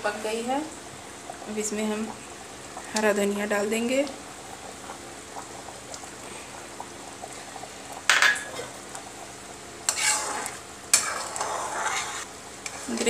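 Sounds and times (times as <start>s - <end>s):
curry simmering: 0.0s - 13.0s
metal ladle scraping pan: 9.9s - 13.0s.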